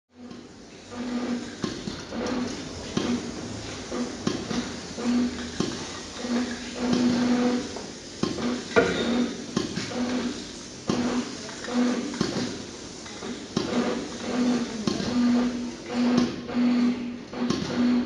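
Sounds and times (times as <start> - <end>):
spray cans clattering: 8.2 - 10.2
loud metal clank: 8.8 - 9.2.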